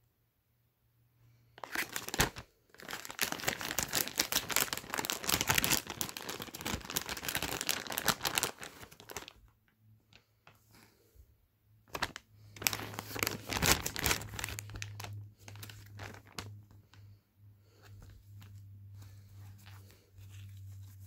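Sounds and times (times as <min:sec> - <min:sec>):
plastic bag crinkling: 0:01.6 - 0:09.4, 0:11.9 - 0:17.0
soft handling noise: 0:15.4 - 0:21.0.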